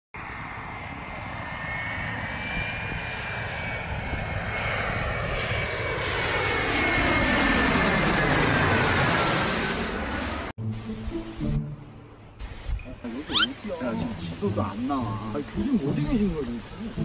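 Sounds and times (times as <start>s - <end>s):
jet airliner passing overhead: 0.2s - 10.6s.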